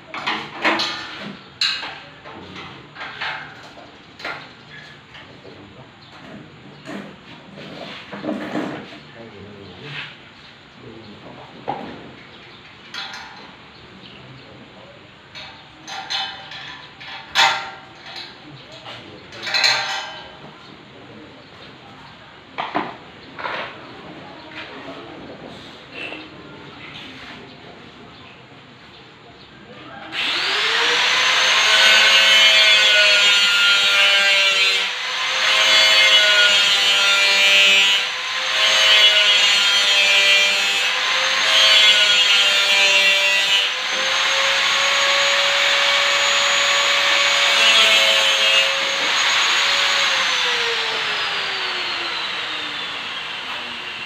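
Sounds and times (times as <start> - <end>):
electric power tool running: 30.1 - 33.3, 34.8 - 36.9, 37.8 - 39.4, 40.4 - 42.2, 43.6 - 54.0.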